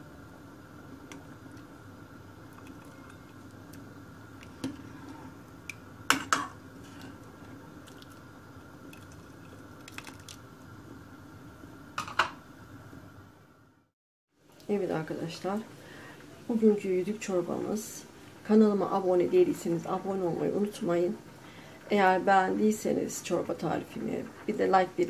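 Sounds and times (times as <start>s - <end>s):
steady hum: 0.0s - 13.9s
liquid sloshing in a pot: 2.4s - 10.5s.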